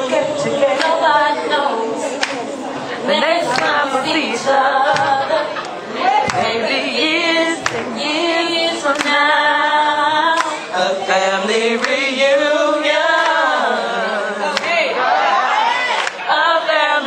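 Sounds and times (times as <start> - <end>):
women singing a cappella in harmony: 0.0 - 17.0.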